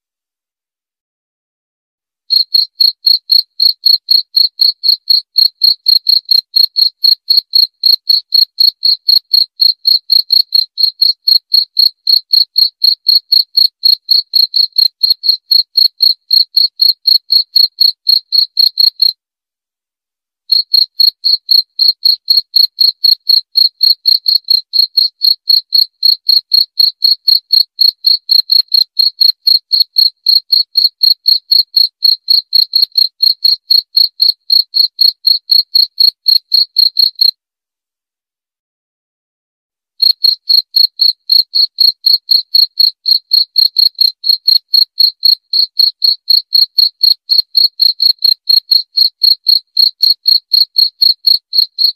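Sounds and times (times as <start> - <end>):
cricket chirping: 2.3 - 19.1, 20.5 - 37.3, 40.0 - 47.4.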